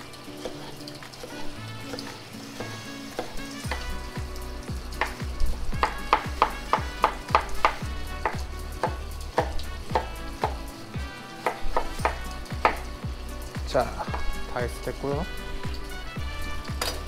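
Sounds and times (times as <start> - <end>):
knife chopping on wooden board: 1.9 - 3.9, 5.0 - 10.6, 11.4 - 12.8, 14.0 - 14.3
background music with bass beat: 2.6 - 17.0.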